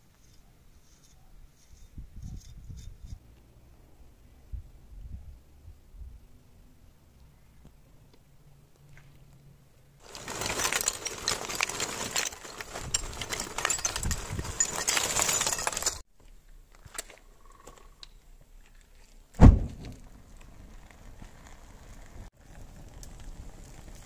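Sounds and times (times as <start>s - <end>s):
charcoal clattering onto brick: 10.0s - 16.0s
low whoosh of flames: 19.4s - 24.0s.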